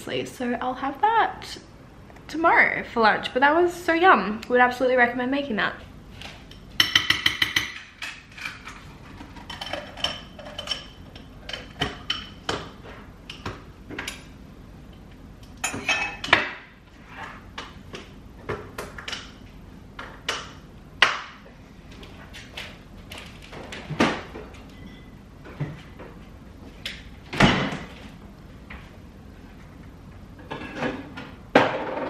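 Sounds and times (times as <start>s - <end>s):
kitchen items clinking and knocking: 6.6s - 14.3s, 15.6s - 16.6s.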